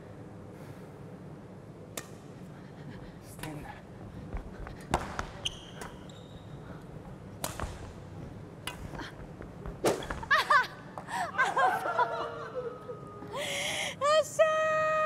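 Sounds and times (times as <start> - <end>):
rackets smacking shuttlecock: 1.9 - 2.4, 4.9 - 6.2, 7.3 - 10.2
short high squeaks: 5.4 - 6.6.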